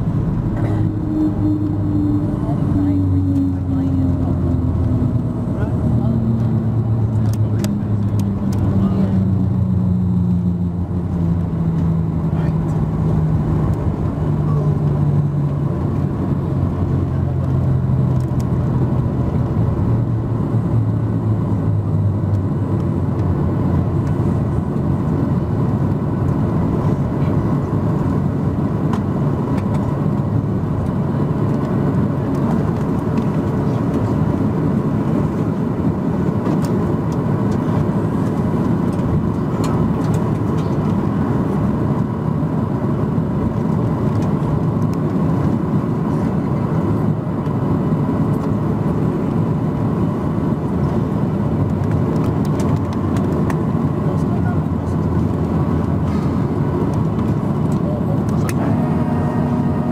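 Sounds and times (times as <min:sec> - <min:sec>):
airplane cabin rumble: 0:00.0 - 0:59.9.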